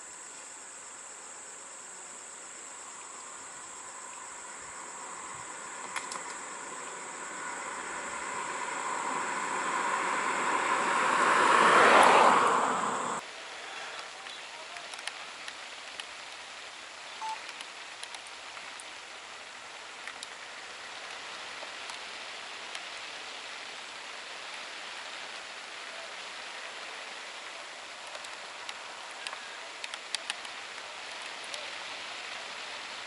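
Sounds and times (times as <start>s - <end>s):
rain hissing: 0.0s - 33.0s
short beep: 17.2s - 17.4s.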